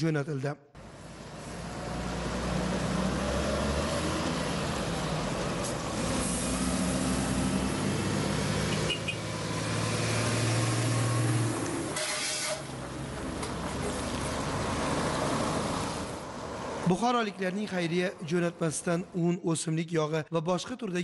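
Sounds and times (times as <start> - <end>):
truck engine drone: 0.8 - 19.2
tyre noise on wet road: 0.9 - 16.9.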